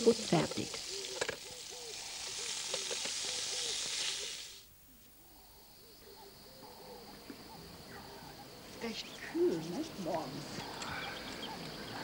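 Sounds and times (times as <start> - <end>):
sausages sizzling in frying pan: 0.0 - 4.7.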